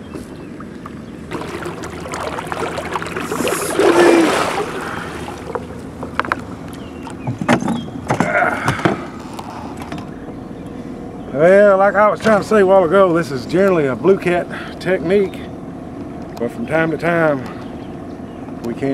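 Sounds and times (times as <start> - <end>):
fish thrashing and splashing: 1.3 - 6.9.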